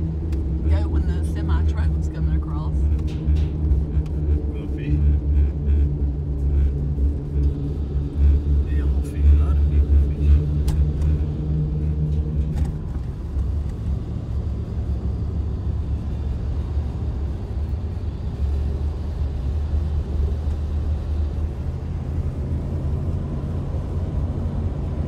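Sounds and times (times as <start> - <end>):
car road rumble: 0.0 - 25.0.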